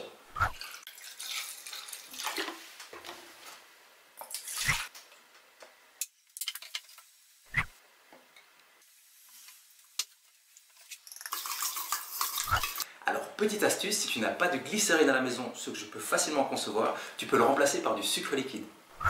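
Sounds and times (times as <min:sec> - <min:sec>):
liquid trickling: 0:00.5 - 0:02.5
water pouring into plastic jug: 0:00.5 - 0:02.5.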